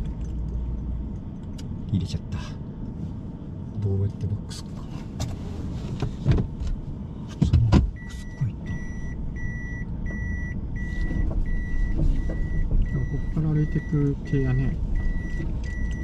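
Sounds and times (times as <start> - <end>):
car engine hum: 0.0 - 16.0
reverse warning beep: 8.0 - 16.0.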